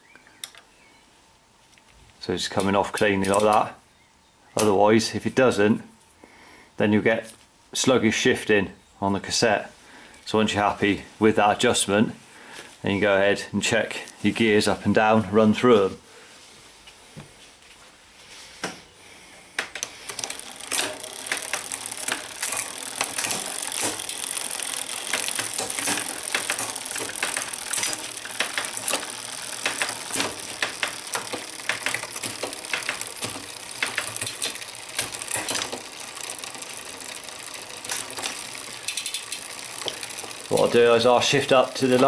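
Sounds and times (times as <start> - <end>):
bicycle chain rattling clatter: 19.9 - 42.0.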